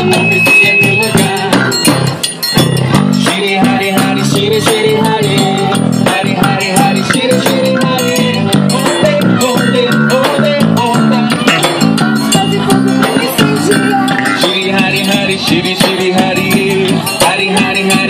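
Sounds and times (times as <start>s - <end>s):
drum beat: 0.0s - 18.0s
guitar: 0.0s - 18.0s
live band playing: 0.0s - 18.0s
accordion melody: 6.6s - 17.6s
triangle ticking: 11.8s - 15.1s.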